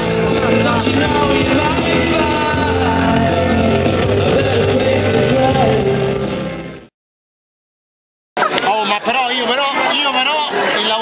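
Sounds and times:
song with band backing: 0.0 - 6.9.

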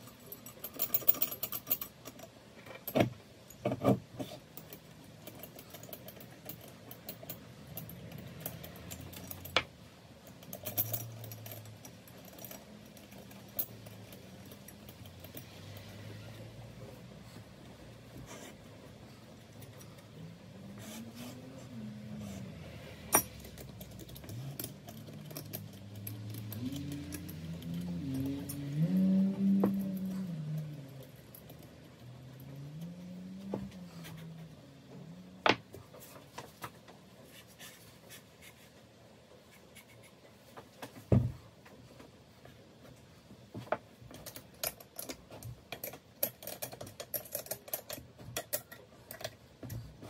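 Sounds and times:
metallic clicks and knocks: 0.0 - 16.0, 23.1 - 34.2, 43.6 - 50.0.

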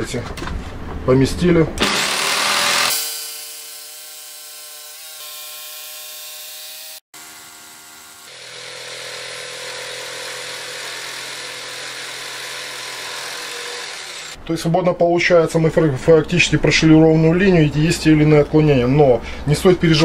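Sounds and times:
electric jigsaw cutting wood: 1.8 - 14.4.

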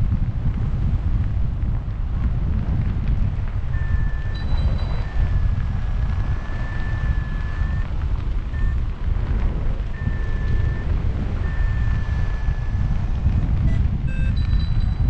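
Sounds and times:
wind rumbling over microphone: 0.0 - 15.0
high electronic tone: 3.8 - 7.8, 10.0 - 13.1, 13.7 - 15.0.

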